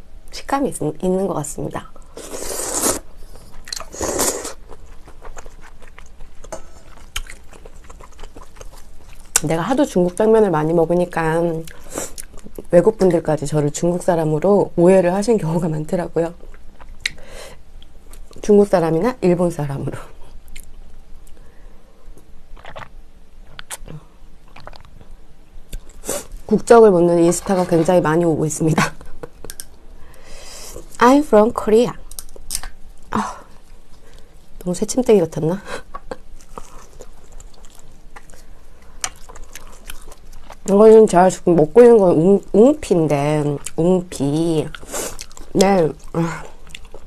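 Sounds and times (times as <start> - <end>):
mouth and food noises: 2.1 - 12.8, 22.2 - 29.8, 35.3 - 47.0
noodles being slurped: 2.2 - 4.6
wet mouth clicks chewing: 22.6 - 22.9, 24.5 - 25.0.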